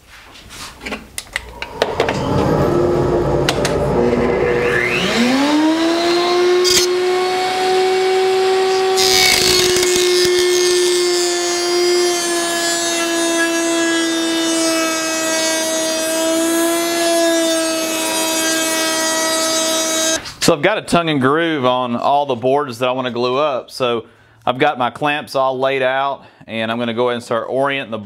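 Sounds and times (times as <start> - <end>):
router bit cutting wood: 1.5 - 20.2
router motor running: 1.6 - 20.2.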